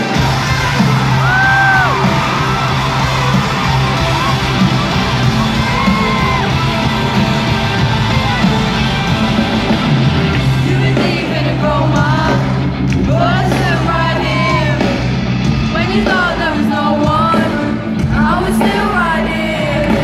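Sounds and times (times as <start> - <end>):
crowd screaming and whooping: 0.0 - 17.6
pop-rock band playing live: 0.0 - 20.0.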